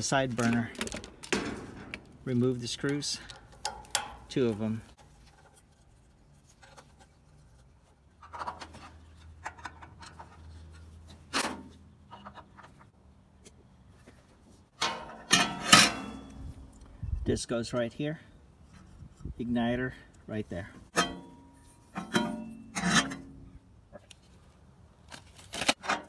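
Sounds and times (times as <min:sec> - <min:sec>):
metal clicks and knocks: 0:02.8 - 0:04.5.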